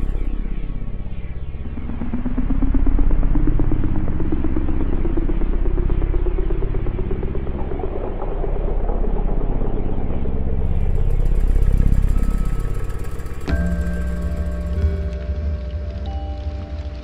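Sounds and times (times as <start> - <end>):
dark ambient drone music: 0.0 - 17.0.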